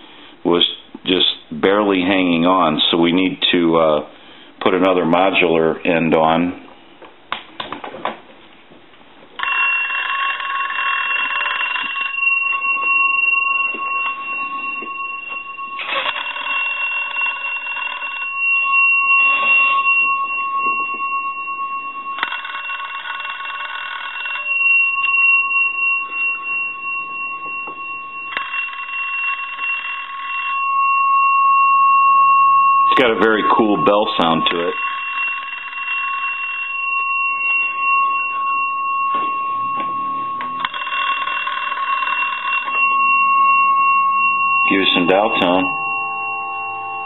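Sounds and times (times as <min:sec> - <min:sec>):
steady high-pitched tone: 0:09.4 - 0:47.0
telephone bell ringing: 0:09.4 - 0:47.0.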